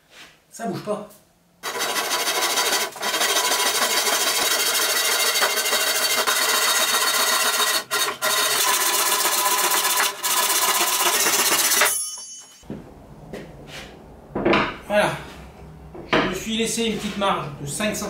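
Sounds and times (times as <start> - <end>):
handsaw cutting wood: 1.6 - 11.9.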